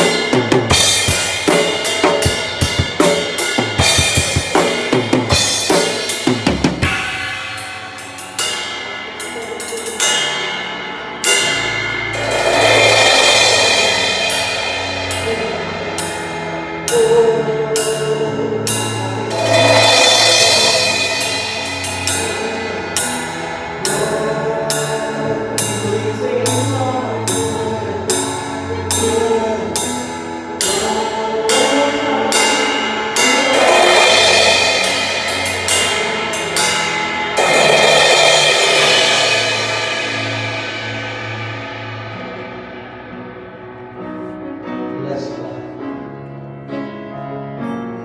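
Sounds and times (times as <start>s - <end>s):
drum hits on slow beat: 0.0s - 10.6s, 11.2s - 16.4s, 19.3s - 23.2s, 33.2s - 43.2s
cymbal swells: 0.0s - 17.0s, 18.7s - 24.0s, 32.3s - 44.0s
live band music: 0.0s - 17.4s.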